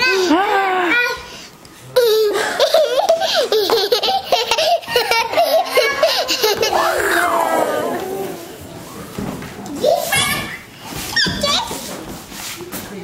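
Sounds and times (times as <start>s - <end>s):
child laughing hard: 2.3s - 8.4s
child squealing: 6.6s - 8.5s.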